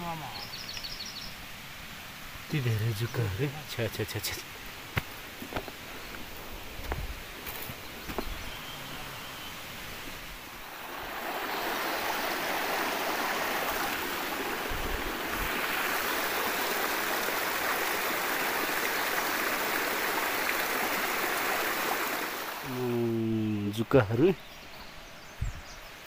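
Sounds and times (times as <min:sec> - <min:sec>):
mountain stream rushing: 0:00.0 - 0:24.2.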